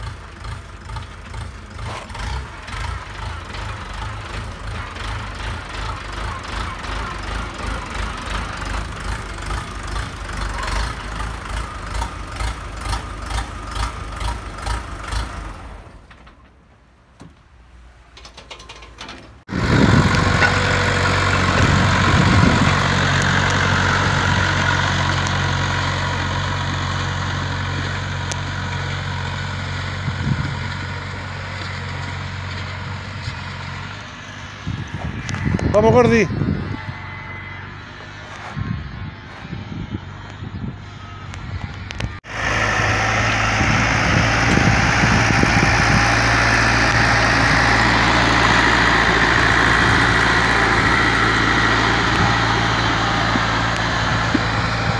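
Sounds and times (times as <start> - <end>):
diesel tractor engine running: 0.0 - 54.9.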